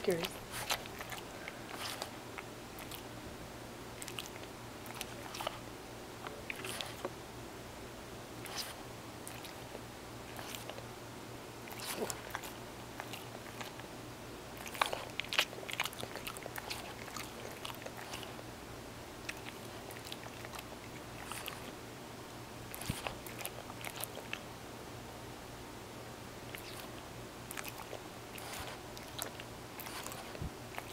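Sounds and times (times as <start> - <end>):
dog licking and smacking lips: 0.0 - 3.1, 4.0 - 7.1, 8.4 - 10.8, 11.6 - 13.9, 14.5 - 18.4, 19.2 - 21.7, 22.7 - 24.4, 26.5 - 30.9.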